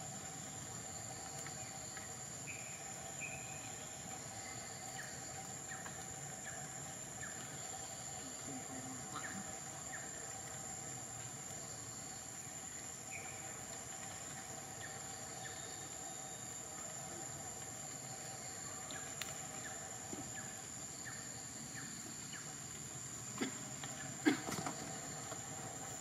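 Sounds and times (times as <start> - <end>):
high insect drone: 0.0 - 26.0
faint clicks: 18.8 - 19.8.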